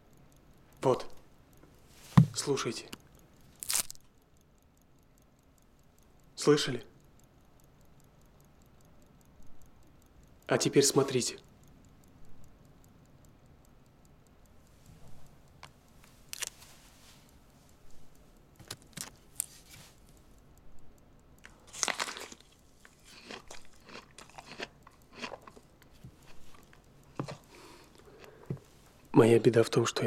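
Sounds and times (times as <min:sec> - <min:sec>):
person chewing crisp apple: 0:03.6 - 0:04.0, 0:16.3 - 0:16.6, 0:21.4 - 0:28.5.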